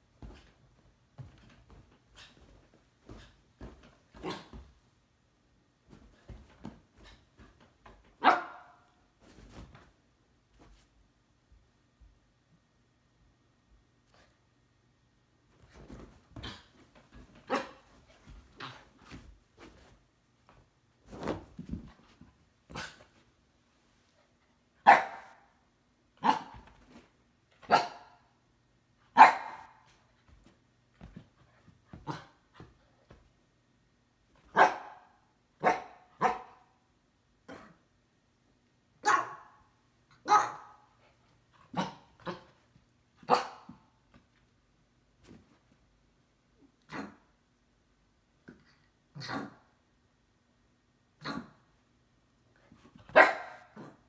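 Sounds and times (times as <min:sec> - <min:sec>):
dog barking: 0:08.2 - 0:08.9, 0:24.8 - 0:25.5, 0:27.7 - 0:28.2, 0:29.2 - 0:29.8, 0:34.5 - 0:36.6, 0:39.0 - 0:39.6, 0:40.2 - 0:40.8, 0:43.3 - 0:43.7, 0:53.1 - 0:53.9.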